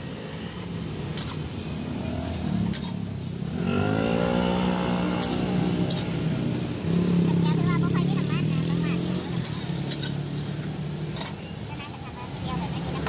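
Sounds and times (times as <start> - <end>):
street traffic noise: 0.0 - 13.0
vehicle engine passing: 1.6 - 11.3.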